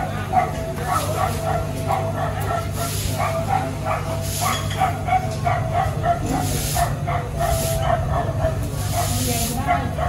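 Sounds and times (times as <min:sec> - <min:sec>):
dog yapping: 0:00.2 - 0:10.0.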